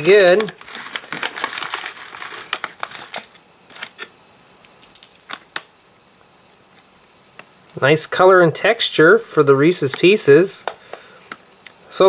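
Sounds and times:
plastic candy bag crinkling: 0:00.0 - 0:04.1, 0:04.7 - 0:05.9.

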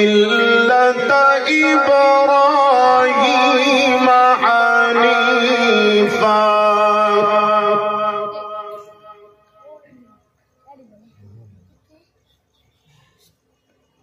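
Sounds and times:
man reciting melodically: 0:00.0 - 0:09.3.

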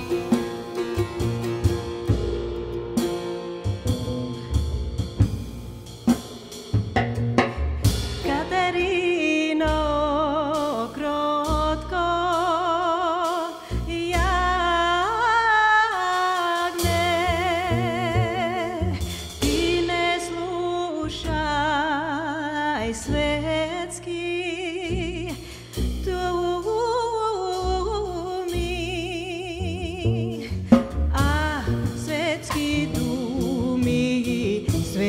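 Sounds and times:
live folk band: 0:00.0 - 0:05.5, 0:23.0 - 0:35.0
lead melody with wide vibrato: 0:00.0 - 0:06.4
tamboura: 0:00.0 - 0:08.8
drum hits: 0:00.0 - 0:09.0
double bass: 0:00.0 - 0:35.0.

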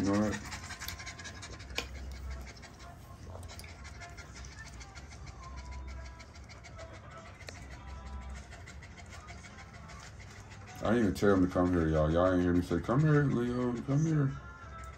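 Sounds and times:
puppy panting: 0:00.0 - 0:14.9.

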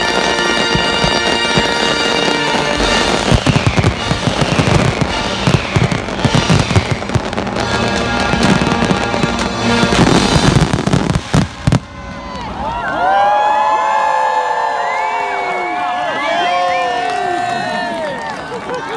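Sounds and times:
fireworks bursting and crackling: 0:00.0 - 0:12.6
show music: 0:00.0 - 0:12.7.

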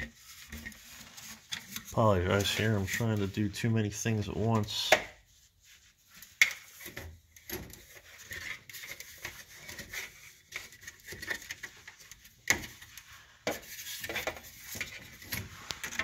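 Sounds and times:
faint rustling: 0:00.0 - 0:16.0.

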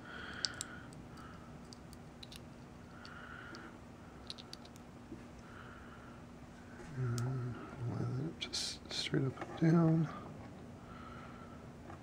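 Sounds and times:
fingers handling small plastic parts: 0:00.4 - 0:04.8.

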